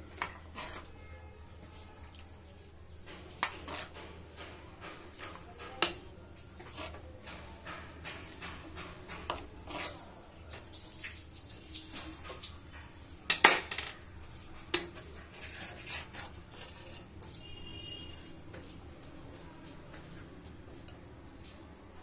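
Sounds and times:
spatula scraping and tapping in pan: 0.0 - 1.0, 3.0 - 11.1, 14.2 - 18.7.

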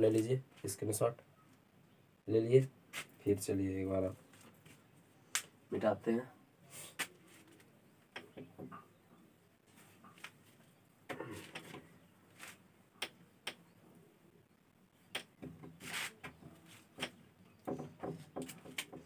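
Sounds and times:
knocks and taps: 8.1 - 8.8, 17.0 - 19.0
cloth wiping a whiteboard: 15.8 - 16.9.

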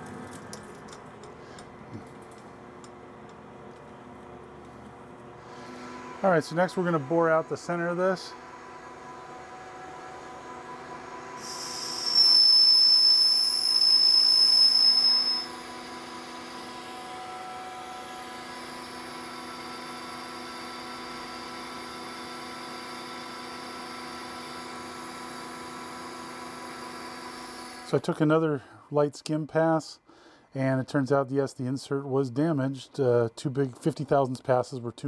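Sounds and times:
lathe humming: 5.3 - 27.9
high-pitched squeal of lathe tool: 11.4 - 17.9.

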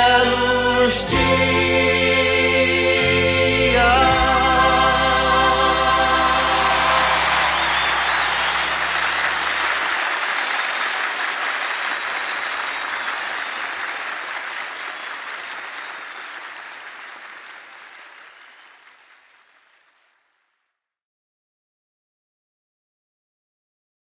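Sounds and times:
held organ chord: 0.0 - 9.8
audience applause: 5.6 - 20.2.

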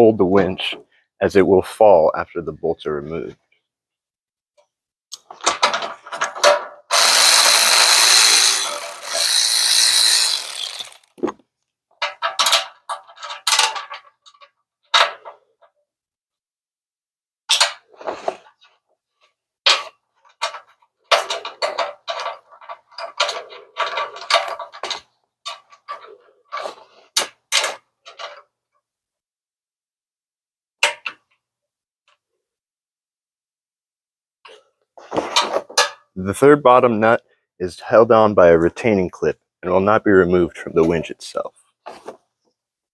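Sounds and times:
power driver running: 6.9 - 11.1
wrench clicking and clanking: 6.9 - 11.1.

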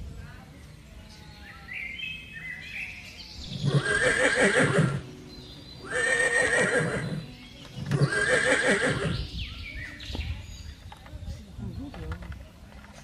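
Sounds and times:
horse whinnying: 3.5 - 5.0, 5.8 - 7.2, 7.8 - 9.2.

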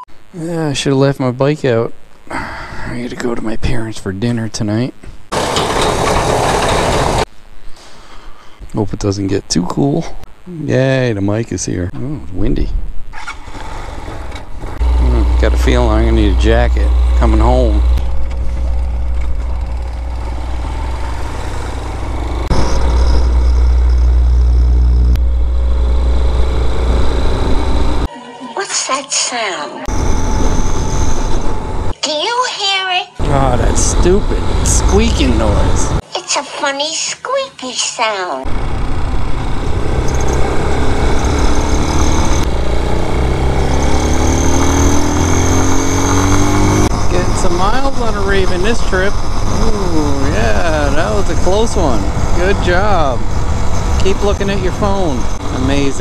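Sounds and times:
road and wind noise: 12.8 - 28.1, 29.9 - 32.0, 33.2 - 36.0, 38.5 - 56.0
motorcycle engine running: 14.5 - 28.1, 33.2 - 36.0, 38.5 - 56.0
thin high tone: 14.8 - 31.6.

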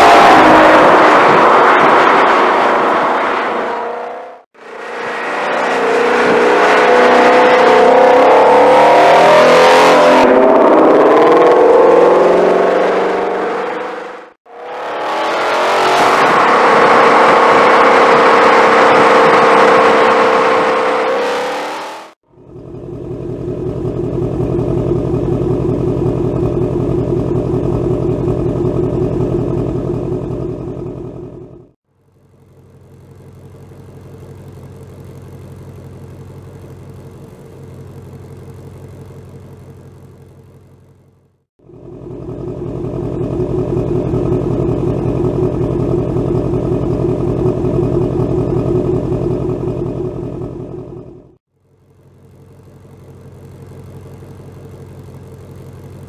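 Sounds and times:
car engine running hard: 4.4 - 56.0
car engine idling low pulse: 22.3 - 56.0.

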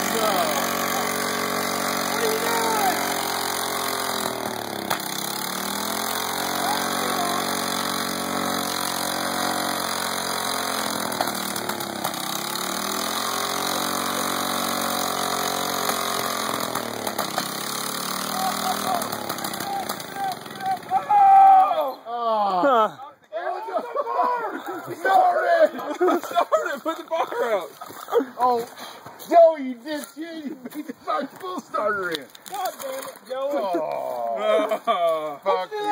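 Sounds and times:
small mower engine running: 0.0 - 21.4.

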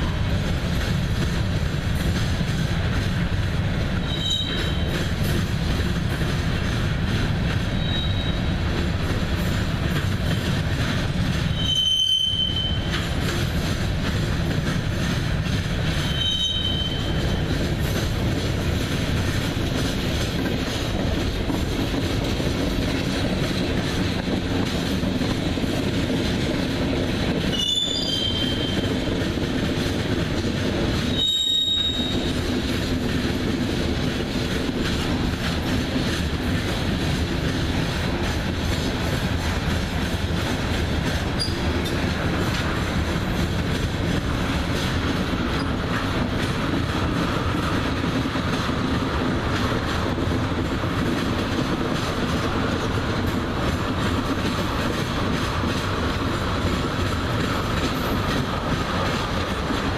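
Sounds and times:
train wheels rumbling on rail: 0.0 - 59.9
high wheel squeals: 4.0 - 4.9, 7.7 - 8.5, 11.5 - 12.9, 16.0 - 17.2, 27.5 - 28.9, 31.1 - 32.4.

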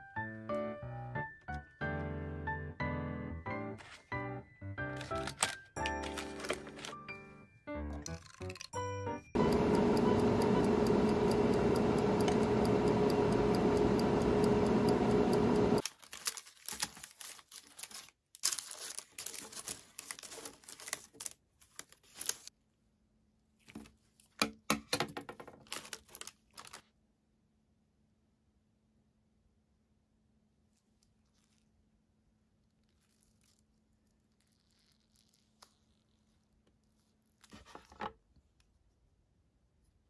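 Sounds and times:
drying appliance fan whirring: 9.4 - 15.8
rustling on paper liner: 15.9 - 22.5.

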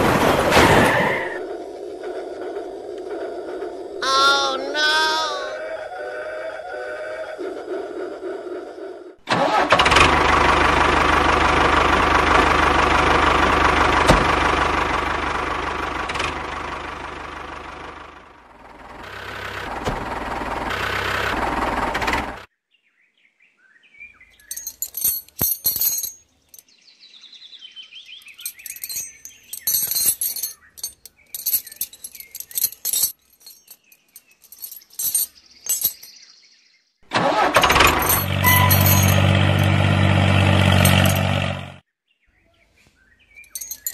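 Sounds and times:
toy tractor engine: 9.3 - 22.5, 37.1 - 41.8.

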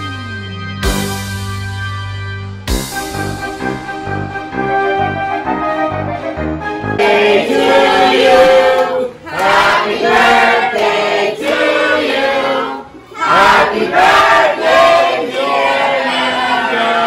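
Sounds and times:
background music: 0.0 - 8.8
crowd singing in chorus: 7.0 - 17.0.

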